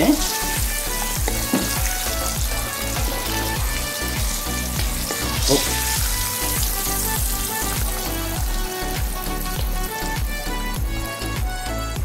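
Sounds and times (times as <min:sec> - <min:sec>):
background music with steady beat: 0:00.0 - 0:12.0
hot oil sizzling in a wok: 0:00.0 - 0:12.0.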